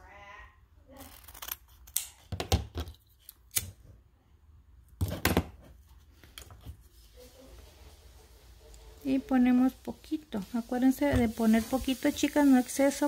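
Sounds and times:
scissors snipping ribbon: 0:01.0 - 0:02.2.

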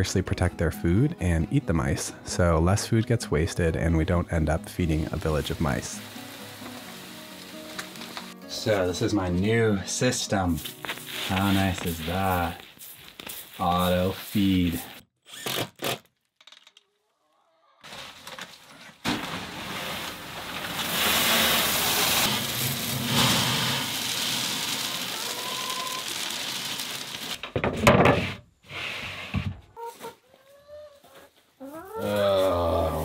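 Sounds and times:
rustling: 0:10.6 - 0:15.0, 0:17.8 - 0:27.5
chicken feed pouring rattle: 0:19.1 - 0:27.4.

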